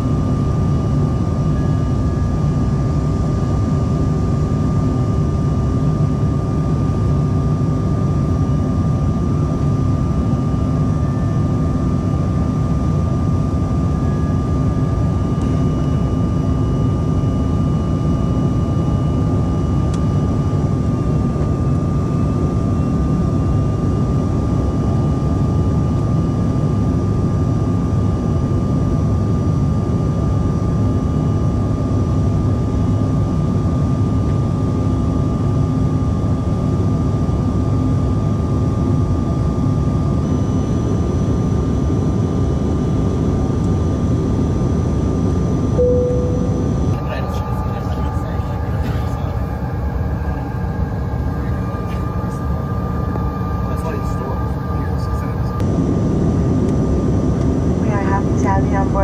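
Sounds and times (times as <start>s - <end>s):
aircraft cabin drone: 0.0s - 59.0s
high whine: 45.8s - 56.8s.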